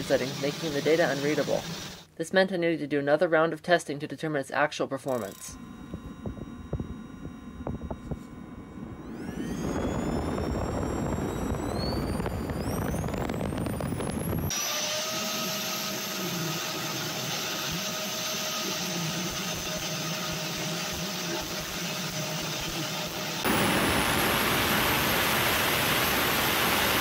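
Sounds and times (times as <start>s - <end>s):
compressor whine rising: 5.5s - 27.0s
jet thruster rushing roar: 8.8s - 14.5s, 23.4s - 27.0s.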